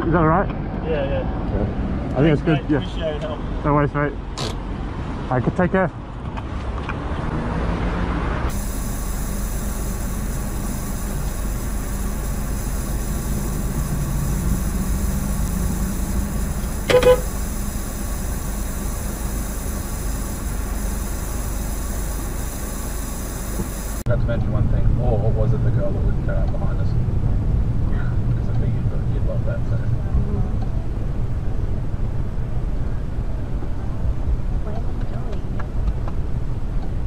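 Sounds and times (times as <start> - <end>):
road noise: 0.0 - 37.0
car engine hum: 6.0 - 37.0
short pitched beep: 16.9 - 17.4.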